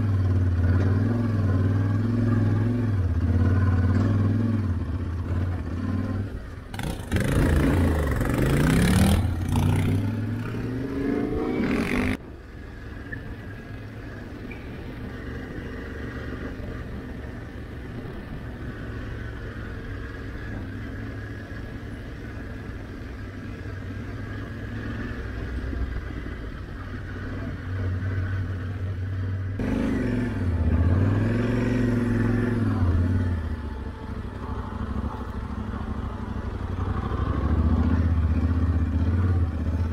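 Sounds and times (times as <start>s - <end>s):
motorcycle engine revving: 0.0s - 12.2s, 14.1s - 39.9s.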